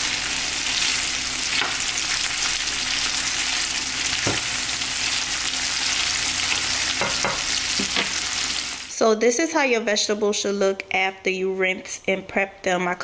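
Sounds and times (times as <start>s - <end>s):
sausage sizzling in a skillet: 0.0s - 9.0s
spatula knocking against pan: 7.0s - 8.1s.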